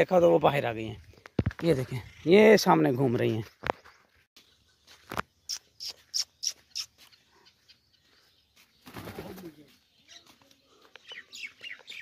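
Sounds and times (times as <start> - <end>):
bird wingbeats: 8.8 - 9.6.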